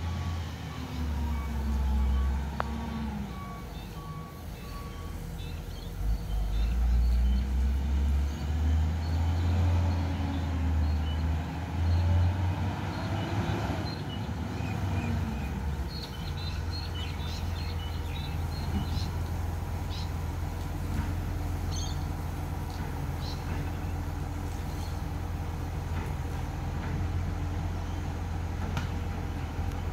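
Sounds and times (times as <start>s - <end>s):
garbage truck engine rumbling: 0.0s - 29.9s
small birds chirping: 3.8s - 7.7s, 12.9s - 20.6s, 21.5s - 25.1s.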